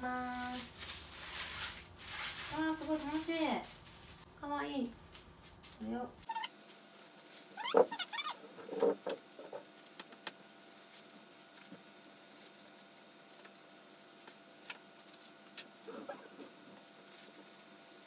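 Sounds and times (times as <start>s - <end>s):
soft squishing and rubbing: 5.1s - 18.0s
short squeaky sounds: 6.2s - 6.6s, 7.6s - 8.6s.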